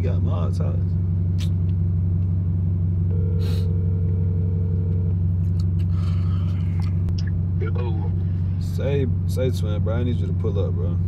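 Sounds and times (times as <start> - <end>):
car interior rumble: 0.0 - 11.0
phone ringback tone: 3.1 - 5.1.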